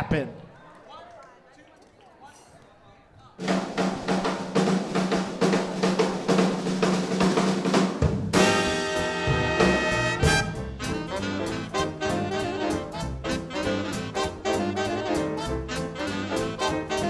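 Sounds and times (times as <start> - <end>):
snare and tom drum strokes: 3.4 - 12.8
swing big band playing: 3.4 - 17.0.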